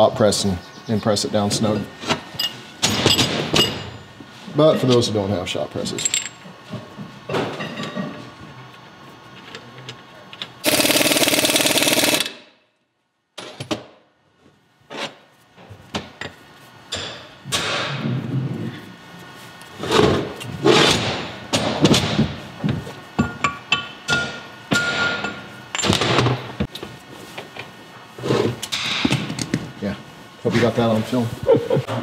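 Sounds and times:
metal tools clinking: 5.9 - 6.4
impact wrench hammering: 10.6 - 12.5.

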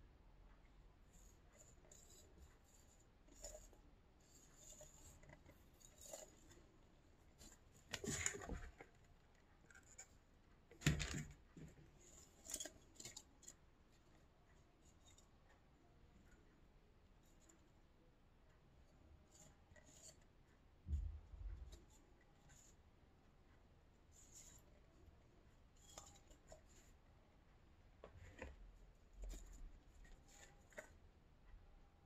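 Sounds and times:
scratching and rubbing of flower pot: 1.0 - 10.1, 28.0 - 31.1.

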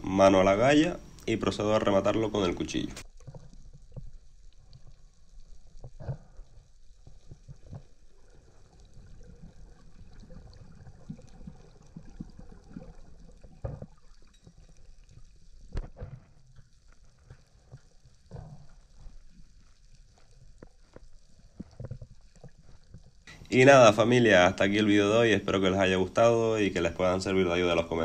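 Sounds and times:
low underwater rumble: 0.0 - 23.8
muffled underwater movement: 0.0 - 28.0
knocks underwater: 11.4 - 14.6.

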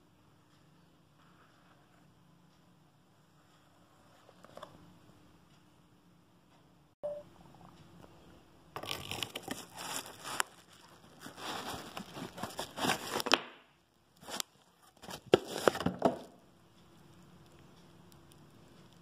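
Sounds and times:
cardboard and plastic rustling: 8.8 - 13.6, 14.2 - 16.4.

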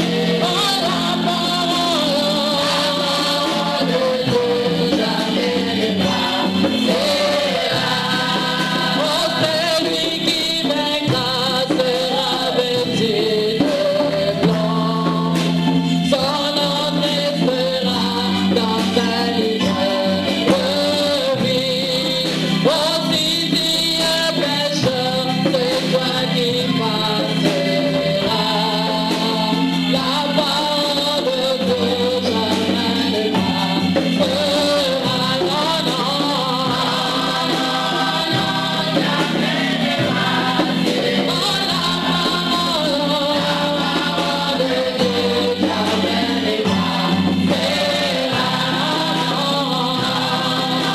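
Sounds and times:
women's choir singing: 0.0 - 14.7, 16.1 - 21.9, 25.4 - 50.9
sustained keyboard chords: 25.2 - 50.9.

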